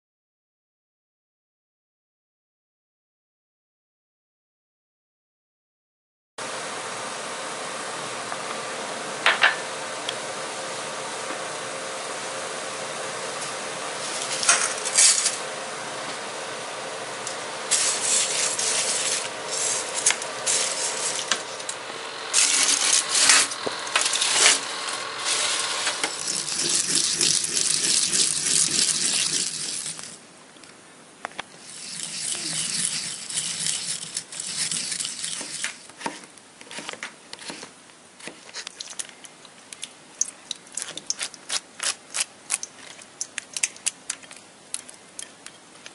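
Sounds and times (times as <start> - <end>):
steady hum: 6.4 - 38.2
cucumber scraped on grater: 17.7 - 21.7, 22.3 - 30.2, 31.6 - 38.7.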